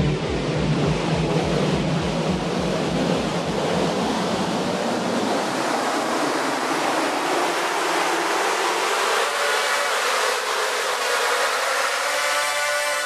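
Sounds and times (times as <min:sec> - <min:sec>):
low pulsing throb: 0:00.0 - 0:06.8
ambient electronic music wash: 0:00.0 - 0:13.0.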